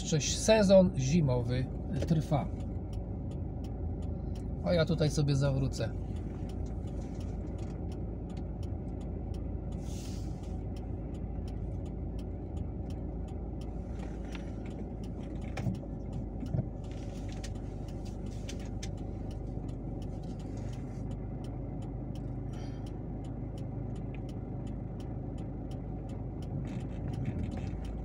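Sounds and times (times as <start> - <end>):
car engine rumble inside cabin: 0.0 - 28.0
faint regular ticking: 0.0 - 28.0
short hiss: 9.8 - 10.6.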